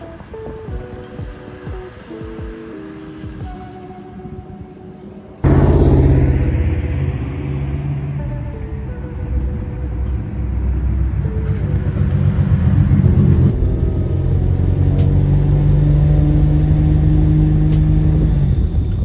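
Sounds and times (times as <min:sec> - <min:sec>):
car engine passing by: 0:05.4 - 0:19.0.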